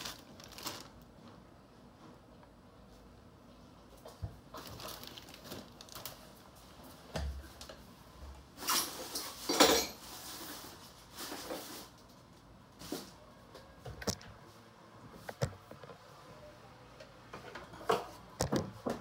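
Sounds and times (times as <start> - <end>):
plastic bags rustling: 0.0 - 1.4, 4.4 - 6.8, 8.6 - 12.0.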